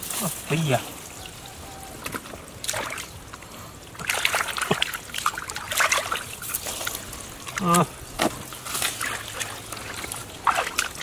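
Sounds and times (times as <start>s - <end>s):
hands splashing in muddy water: 2.0s - 3.1s, 3.9s - 11.0s.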